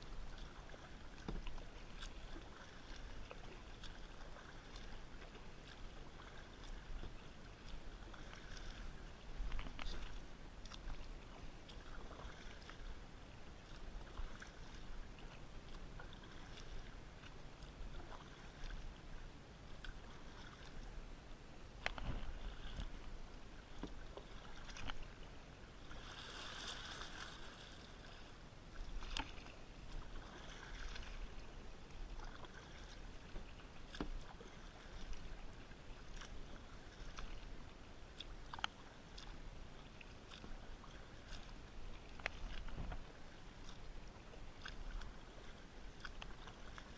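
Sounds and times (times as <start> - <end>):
paddle swishes and drips: 0.0 - 46.9
water splash: 25.8 - 31.5.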